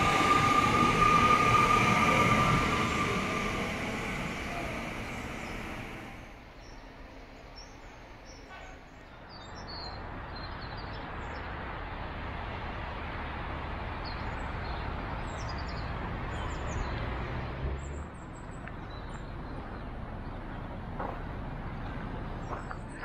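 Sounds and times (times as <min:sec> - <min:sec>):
birds chirping: 0:00.0 - 0:11.5
rushing outdoor noise: 0:00.0 - 0:23.0.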